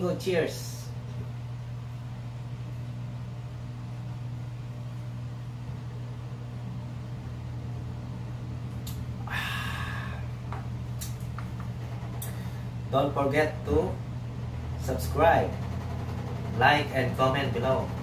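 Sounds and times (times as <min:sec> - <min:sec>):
steady low hum: 0:00.0 - 0:18.0
breathy exhale: 0:09.2 - 0:10.4.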